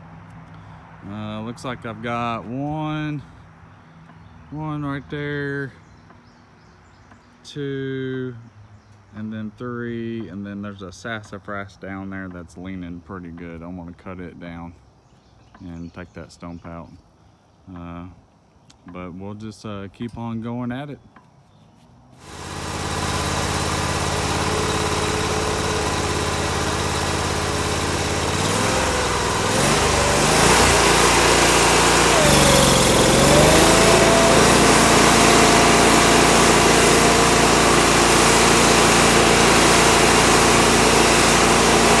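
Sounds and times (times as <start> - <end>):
stump grinder engine running: 22.2 - 42.0.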